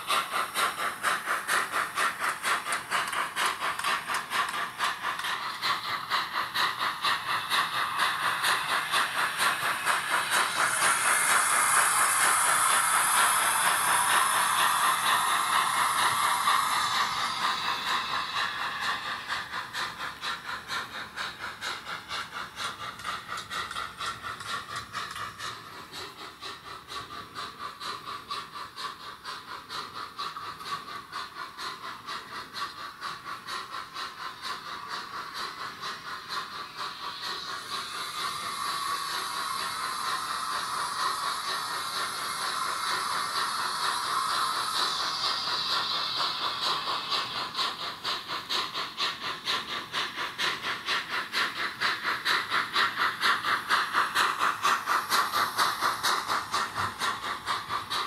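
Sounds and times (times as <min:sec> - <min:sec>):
high steam hiss: 0:00.0 - 0:58.0
model train steam chuffs: 0:00.0 - 0:58.0.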